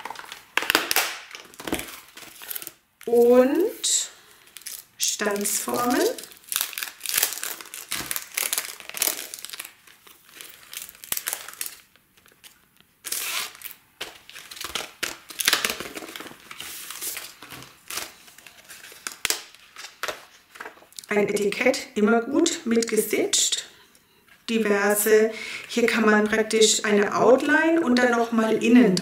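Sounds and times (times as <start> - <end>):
plastic packaging crinkling: 0.0 - 3.1, 4.1 - 21.1.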